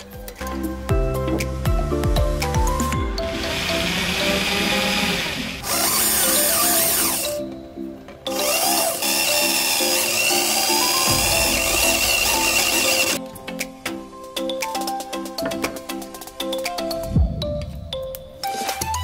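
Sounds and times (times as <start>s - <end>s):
background music: 0.0s - 19.0s
electric drill boring into metal: 3.3s - 7.4s, 8.3s - 13.2s.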